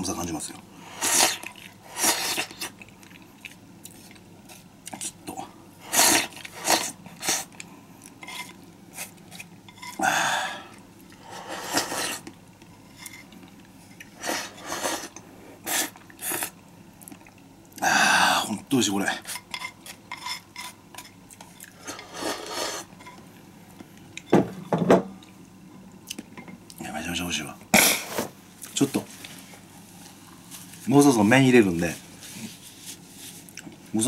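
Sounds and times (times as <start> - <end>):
chewing: 1.4 - 5.1.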